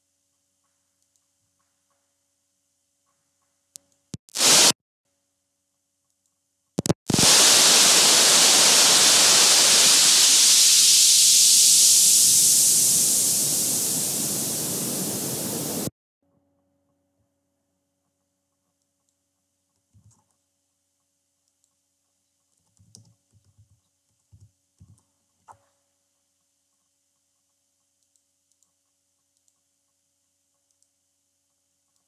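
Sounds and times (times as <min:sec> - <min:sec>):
loud rushing hiss: 0:04.3 - 0:04.8, 0:07.1 - 0:15.9.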